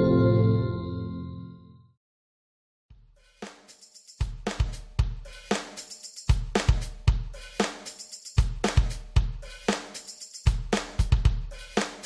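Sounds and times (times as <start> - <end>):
drum-kit beat music: 2.9 - 12.0.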